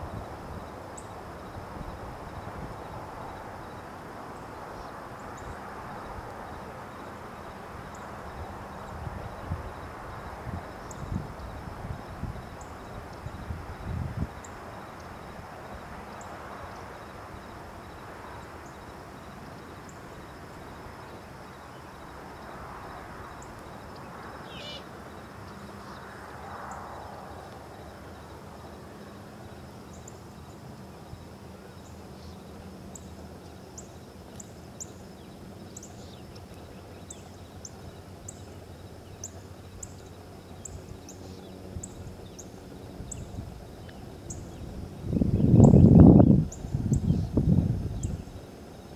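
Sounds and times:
faint high ticks: 27.4s - 27.7s, 43.8s - 44.0s.

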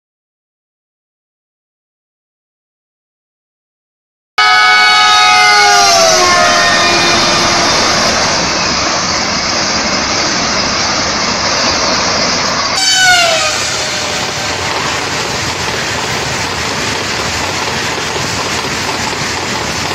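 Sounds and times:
train horn: 4.4s - 8.4s, 12.8s - 14.6s
train rushing past on rails: 4.4s - 19.9s.

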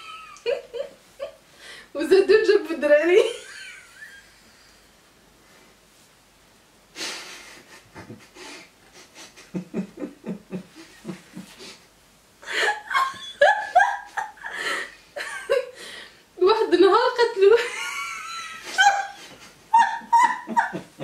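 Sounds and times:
woman laughing: 0.0s - 1.4s, 3.2s - 4.2s, 9.2s - 11.7s, 12.4s - 15.8s, 17.4s - 21.0s.

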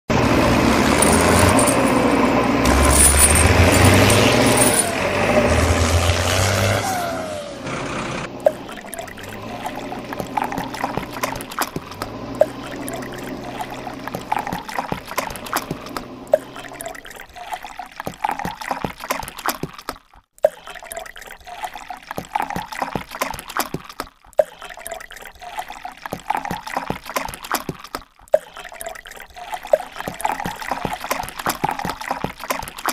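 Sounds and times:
shallow river water trickling: 0.4s - 5.3s, 8.2s - 32.9s
small sharp splashes: 8.3s - 32.9s.

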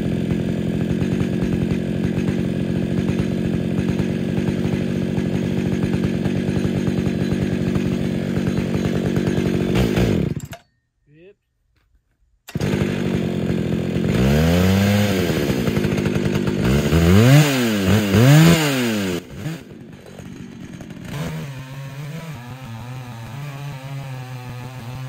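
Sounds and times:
chainsaw engine revving: 0.0s - 10.5s, 12.5s - 25.0s.

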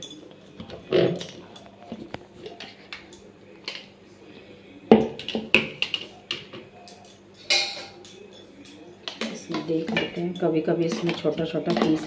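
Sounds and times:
steel vessels and spoon clinking: 0.0s - 1.4s, 5.0s - 12.0s.

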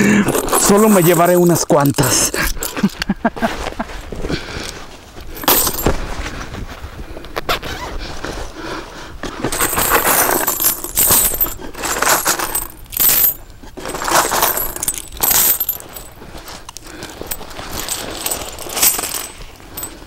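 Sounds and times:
coins clinking into backpack: 0.0s - 3.0s, 5.3s - 6.0s, 9.5s - 20.0s.

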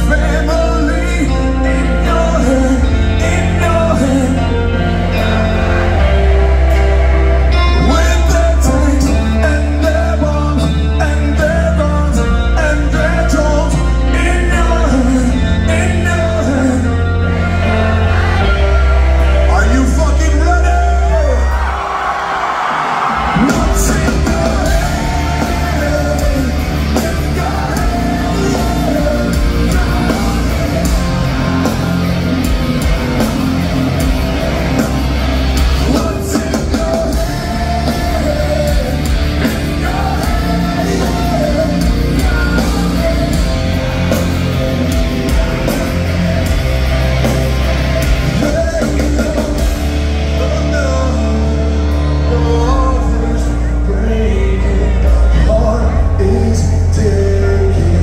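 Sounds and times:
person singing: 0.0s - 21.7s, 23.1s - 58.0s
distorted electric guitars: 0.0s - 58.0s
drums: 0.0s - 58.0s
heavy rock band playing: 0.0s - 58.0s.

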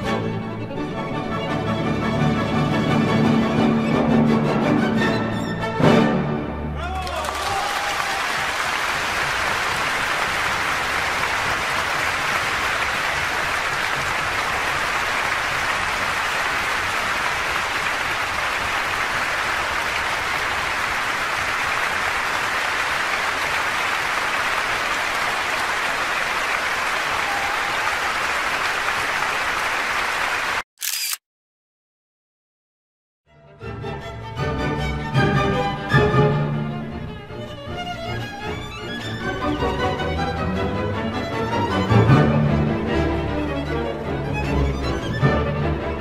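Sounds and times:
audience applauding: 6.8s - 30.7s.

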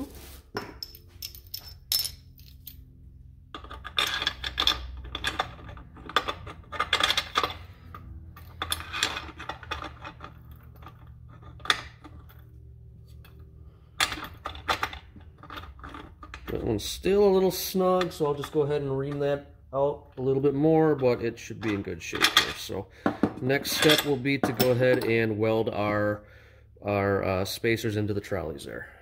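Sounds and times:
steady low hum: 0.0s - 29.0s
metal clinking and rattling: 0.6s - 2.9s, 3.5s - 12.5s.

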